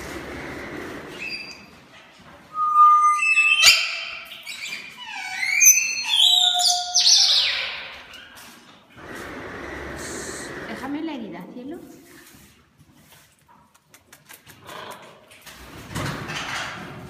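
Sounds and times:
parrots whistling: 2.5s - 7.9s
parrot squawky calls: 3.0s - 8.0s.

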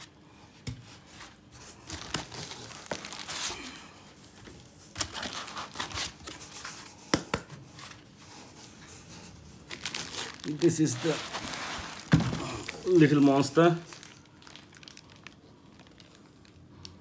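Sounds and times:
plastic wrap crinkling: 1.1s - 6.9s, 7.7s - 17.0s
foam scraping against cardboard: 10.8s - 12.1s.

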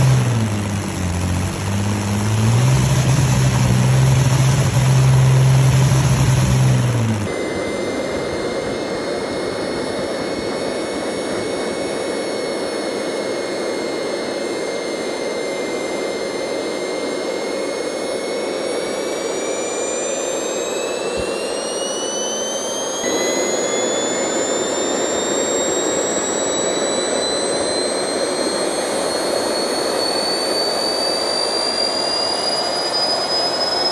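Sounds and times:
high turbine whine: 0.0s - 33.9s
turbojet rushing noise: 18.6s - 33.9s.

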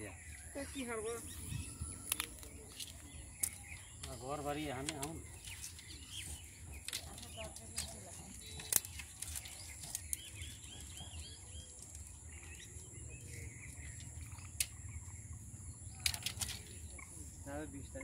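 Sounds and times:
birds chirping: 0.0s - 18.0s
bamboo strips clicking and knocking: 2.0s - 12.8s, 13.7s - 14.9s, 15.9s - 17.0s.

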